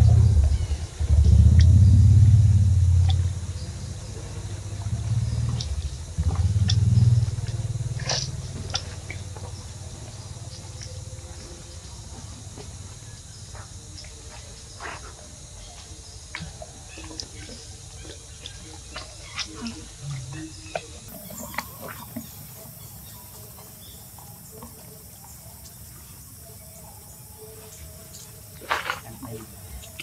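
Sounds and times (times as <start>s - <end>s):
low rumble: 0.0s - 10.4s.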